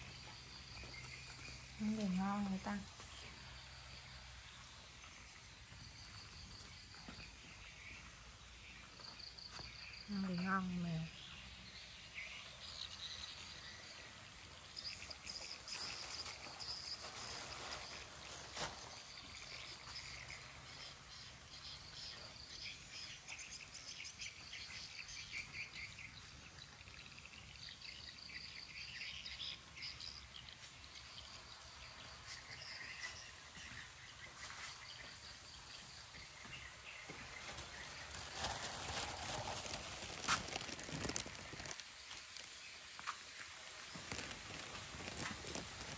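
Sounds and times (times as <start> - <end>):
birds chirping: 0.0 - 17.7
insects trilling: 9.4 - 23.1, 30.0 - 45.9
rustling noise: 15.2 - 20.1, 36.7 - 45.9.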